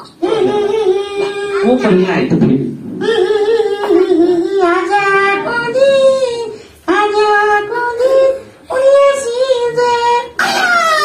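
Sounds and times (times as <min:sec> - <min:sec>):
high voice singing: 0:02.9 - 0:11.0.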